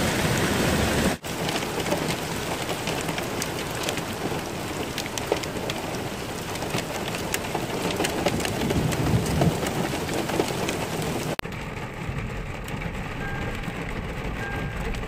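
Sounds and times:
heavy rain pouring: 0.0 - 15.0
low rumble: 11.4 - 15.0.

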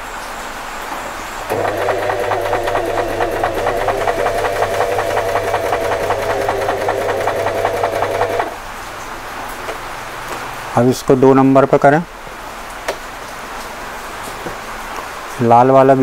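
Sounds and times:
sewing machine running: 1.5 - 8.6.

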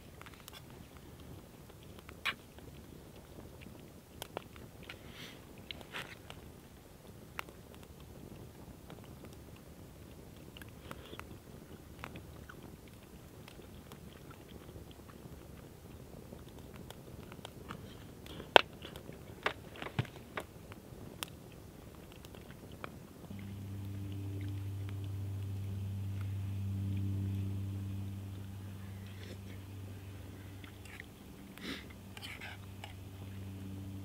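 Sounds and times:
campfire crackling and popping: 0.0 - 34.0
low droning tone: 23.3 - 34.0.

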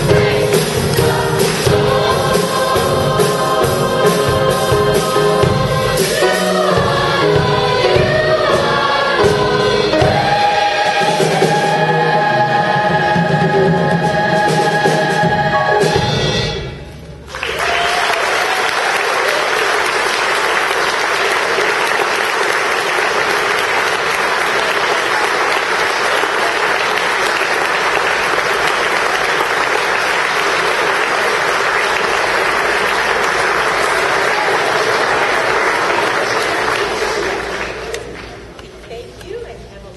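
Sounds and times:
audience applauding: 17.3 - 38.6.

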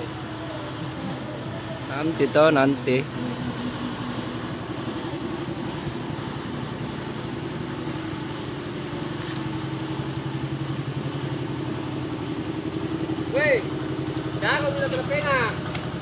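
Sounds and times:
truck engine idling: 0.0 - 16.0.

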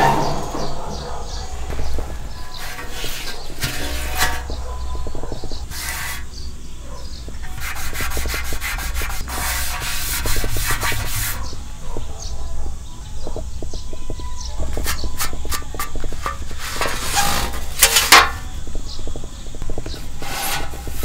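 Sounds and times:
glove scraping metal tray: 1.7 - 6.4, 7.1 - 11.6, 14.7 - 18.4, 19.8 - 21.0.

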